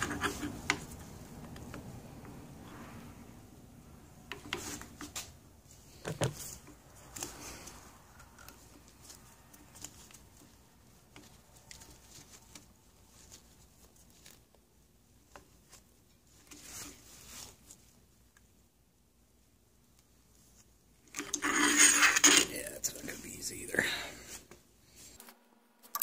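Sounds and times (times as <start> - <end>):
plastic clicks and scrapes: 0.0 - 1.8.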